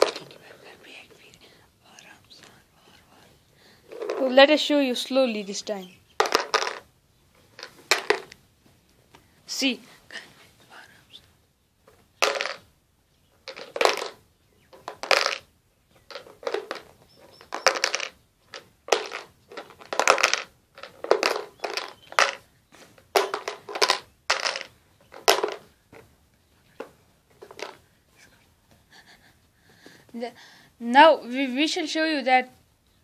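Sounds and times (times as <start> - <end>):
nail rattling in plastic container: 0.0 - 1.0, 3.9 - 4.6, 6.2 - 6.9, 7.5 - 8.4, 12.2 - 12.6, 13.4 - 26.0, 26.8 - 27.8.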